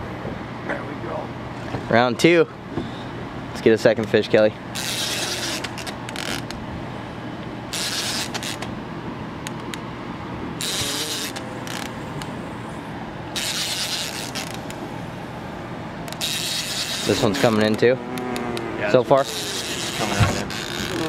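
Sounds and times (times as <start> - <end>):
fishing reel gears whirring: 4.7 - 6.6, 7.7 - 8.7, 10.6 - 12.6, 13.3 - 14.8, 16.0 - 21.0.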